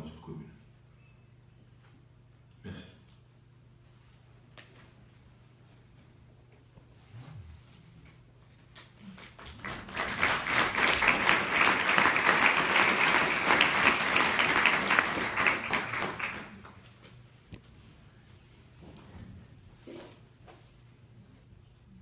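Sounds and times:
audience applauding: 0:09.2 - 0:16.8.

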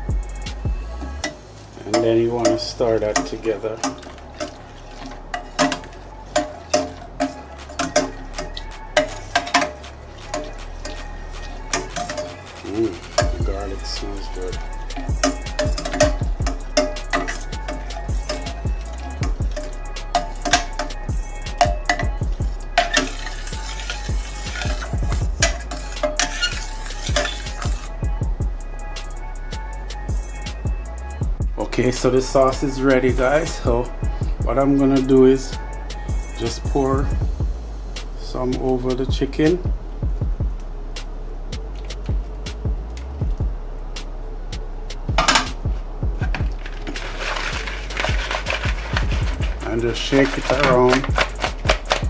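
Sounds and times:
spoon clinking against metal pot: 0:01.2 - 0:13.5, 0:14.2 - 0:27.9, 0:45.2 - 0:45.6.

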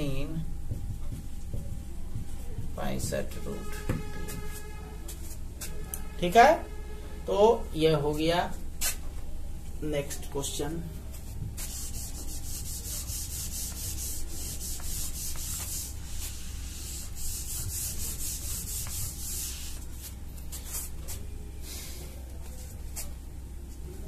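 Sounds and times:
duster rubbing on whiteboard: 0:11.1 - 0:21.3.

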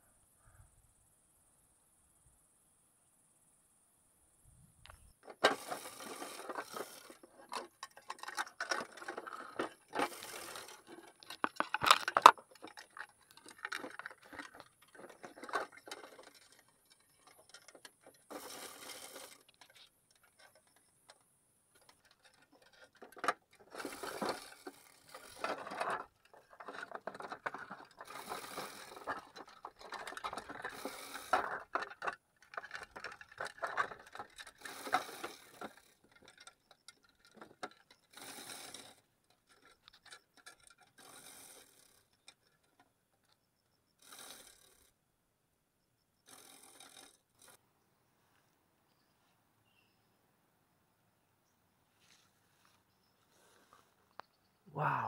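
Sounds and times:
plastic boxes clattering: 0:05.2 - 0:20.7, 0:21.8 - 0:38.3.

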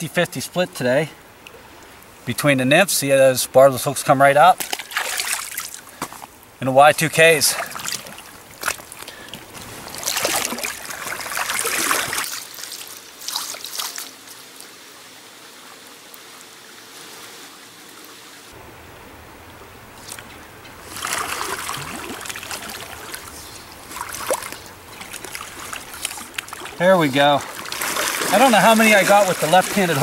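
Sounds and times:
stream water trickling: 0:00.0 - 0:30.0
water splashing: 0:04.5 - 0:06.0, 0:07.0 - 0:14.8, 0:17.2 - 0:30.0.

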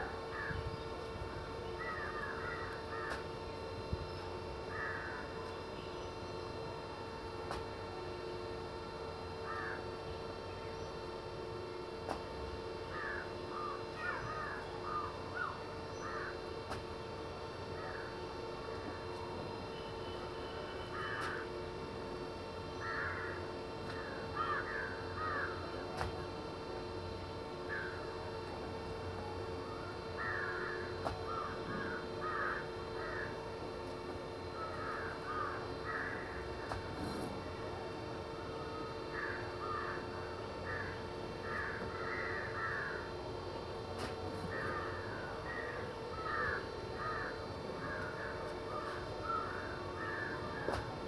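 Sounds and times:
crows cawing: 0:00.3 - 0:00.7, 0:01.8 - 0:03.4, 0:04.6 - 0:05.4, 0:09.4 - 0:09.9, 0:12.9 - 0:16.5, 0:17.7 - 0:18.4, 0:20.9 - 0:21.6, 0:22.7 - 0:25.7, 0:27.6 - 0:28.1, 0:30.0 - 0:33.6, 0:34.4 - 0:36.9, 0:39.0 - 0:43.2, 0:44.4 - 0:50.9.

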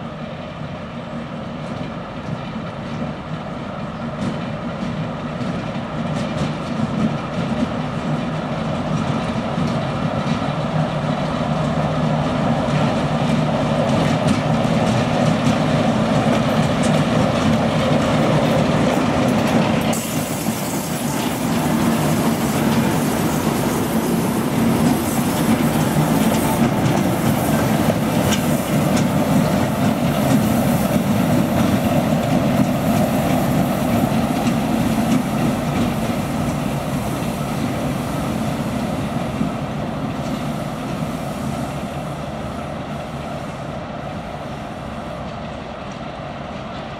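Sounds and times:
diesel locomotive engine hum: 0:00.0 - 0:46.9
wheels clicking over rail joints: 0:01.6 - 0:37.8.

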